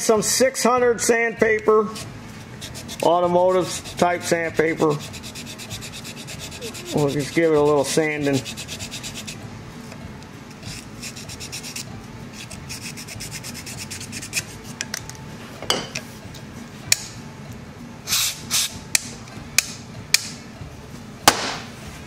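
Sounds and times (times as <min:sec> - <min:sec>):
sandpaper rubbing back and forth: 0:01.9 - 0:09.4, 0:10.6 - 0:14.7.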